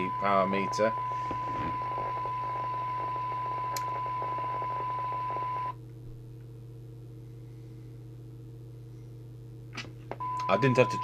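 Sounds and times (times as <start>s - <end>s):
steady test tone: 0.0s - 5.8s, 10.2s - 11.0s
low electrical hum: 0.0s - 11.0s.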